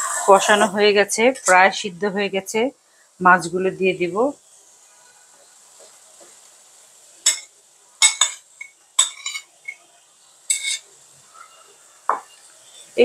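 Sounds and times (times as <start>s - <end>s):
metal spatula clinking on plate: 7.2s - 9.8s, 10.5s - 11.6s.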